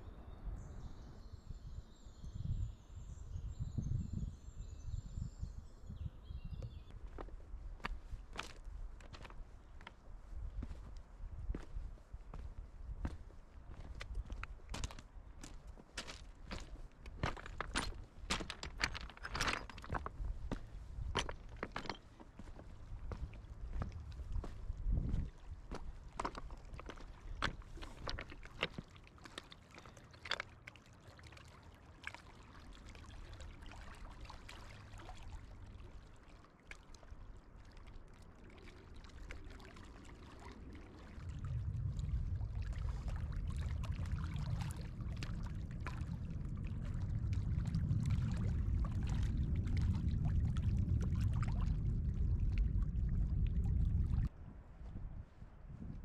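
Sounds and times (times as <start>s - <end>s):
waves lapping on stones: 13.7s - 52.3s
low rumble: 41.2s - 54.3s.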